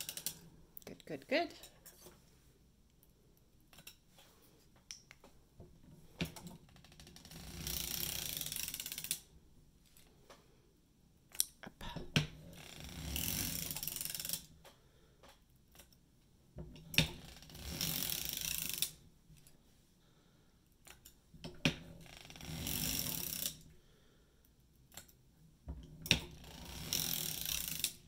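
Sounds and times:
knitting machine rattling: 0.0 - 0.5, 6.0 - 10.0, 12.4 - 14.5, 16.8 - 19.0, 20.8 - 23.7, 25.8 - 28.0.

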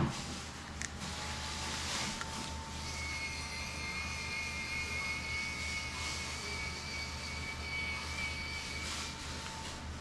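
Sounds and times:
steady mechanical hum: 0.0 - 10.0
high-pitched whining tones: 2.7 - 9.9.

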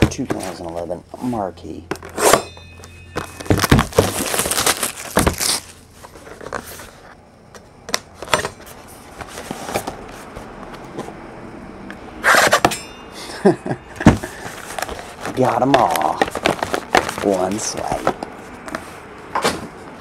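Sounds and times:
shrink wrap crinkling and tearing: 3.5 - 5.8.

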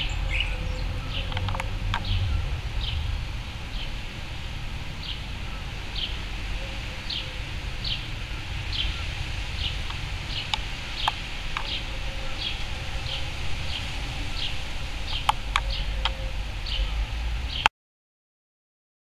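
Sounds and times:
small bird chirping: 0.0 - 3.1, 8.7 - 17.6
low background rumble: 0.0 - 17.6.

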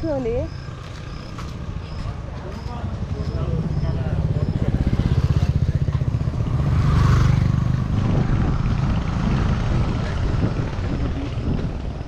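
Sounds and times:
vehicle engine pulsing: 0.0 - 12.0.

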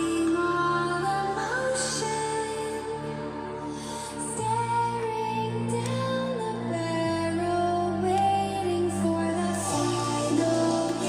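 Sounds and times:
song with sung vocal over loudspeaker: 0.0 - 11.0
strong bass line: 4.4 - 11.0.

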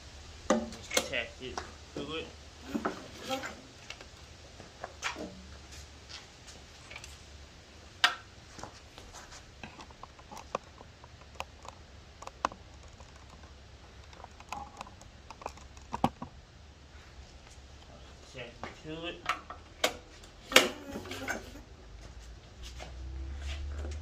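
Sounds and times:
low steady hum: 0.0 - 24.0
light clicks and taps: 8.0 - 16.3.

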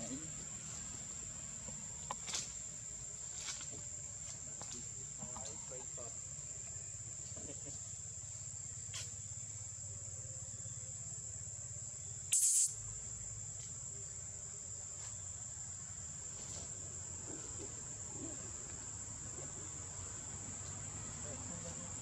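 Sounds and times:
high-pitched insect drone: 0.0 - 16.1
loud hiss burst: 12.3 - 12.8.

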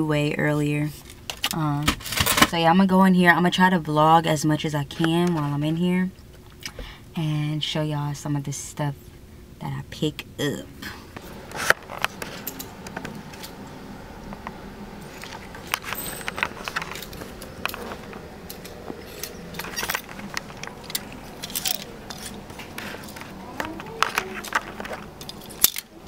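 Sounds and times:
clothes hangers clicking on racks: 11.2 - 26.0
wire shopping cart rattling: 15.1 - 26.0.

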